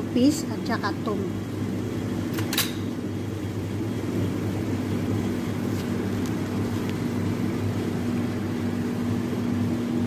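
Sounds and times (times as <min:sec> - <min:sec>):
kitchen fan motor hum: 0:00.0 - 0:10.0.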